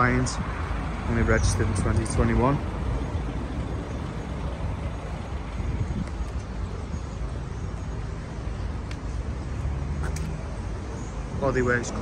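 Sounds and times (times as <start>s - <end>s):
traffic rumble: 0.0s - 12.0s
wind on microphone: 1.3s - 7.1s.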